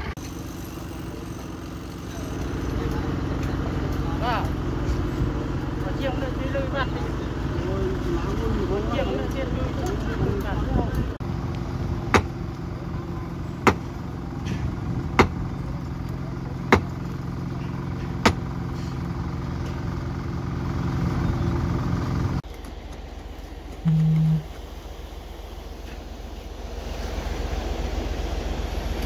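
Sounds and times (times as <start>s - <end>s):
construction machinery engine running: 0.0s - 29.0s
sharp knocks: 12.1s - 12.3s, 13.6s - 13.9s, 15.2s - 15.4s
short low tone: 23.8s - 24.5s.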